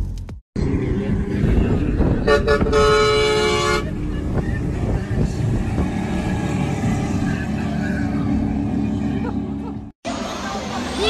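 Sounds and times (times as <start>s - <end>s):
engine running: 0.0s - 11.0s
vehicle horn: 2.1s - 4.0s.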